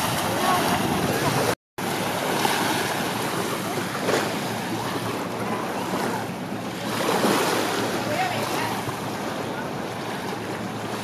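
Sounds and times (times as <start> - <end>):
wind noise on microphone: 0.0 - 1.6
sea surf: 0.0 - 11.0.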